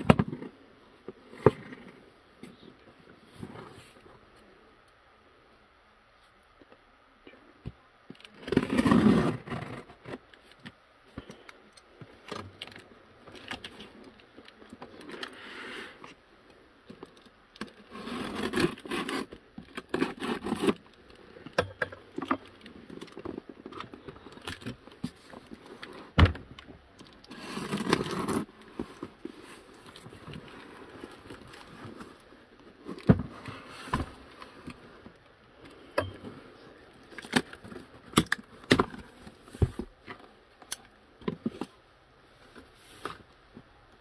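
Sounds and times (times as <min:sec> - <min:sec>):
cardboard scraping and rustling: 0:08.3 - 0:10.3, 0:17.0 - 0:20.9, 0:27.3 - 0:35.1.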